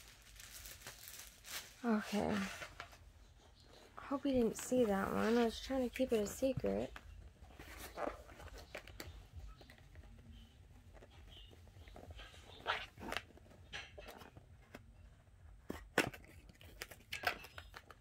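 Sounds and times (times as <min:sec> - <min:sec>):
rustling and crinkling: 0:00.0 - 0:18.0
sharp crinkles and taps: 0:06.0 - 0:14.9.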